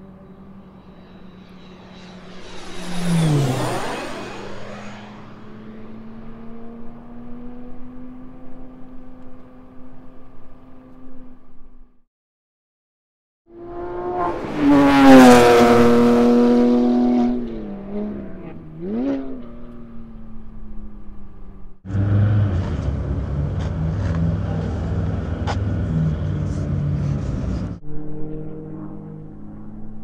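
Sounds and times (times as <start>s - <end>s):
engine rev blip: 0.0s - 6.7s
race car passing at speed: 0.0s - 9.7s, 13.5s - 30.0s
rough noisy car rumble: 0.0s - 11.9s, 13.8s - 30.0s.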